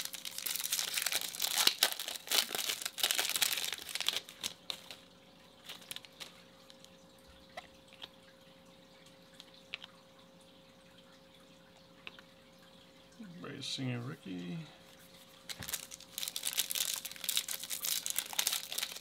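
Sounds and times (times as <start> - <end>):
foil wrapper crinkling: 0.0 - 6.9, 15.5 - 19.0.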